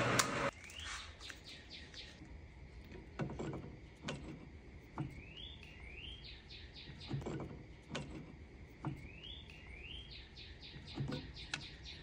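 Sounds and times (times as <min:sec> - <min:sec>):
small bird chirping: 0:00.5 - 0:02.2, 0:05.0 - 0:07.2, 0:08.8 - 0:12.0.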